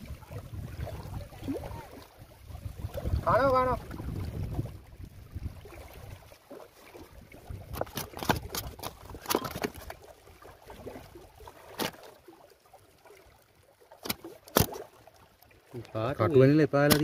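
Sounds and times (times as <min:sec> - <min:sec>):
fish knocking against rocks: 0:07.6 - 0:09.9, 0:14.0 - 0:14.8.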